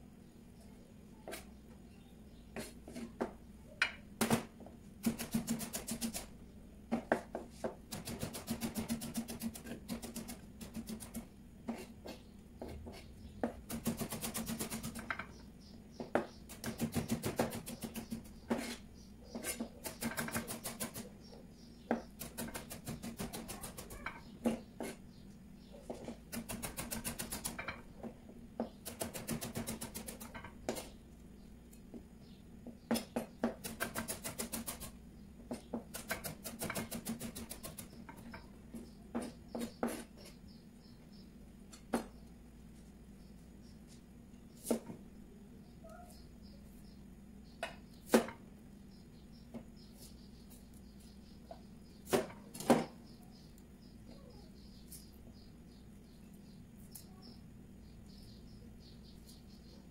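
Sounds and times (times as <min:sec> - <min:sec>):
knife chopping on cutting board: 0:16.0 - 0:21.0.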